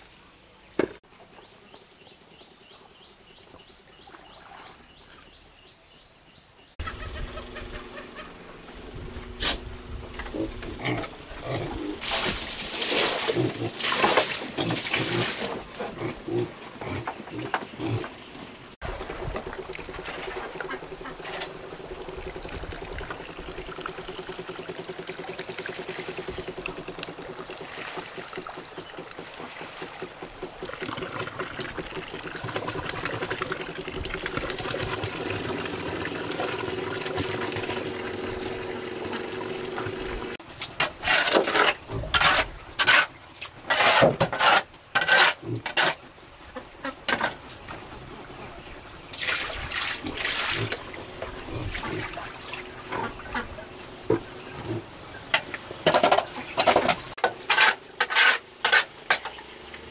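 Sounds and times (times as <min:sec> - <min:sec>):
loud short strokes: 0:09.4 - 0:09.7
water pouring and trickling: 0:12.0 - 0:15.6, 0:18.8 - 0:40.4, 0:49.1 - 0:53.6.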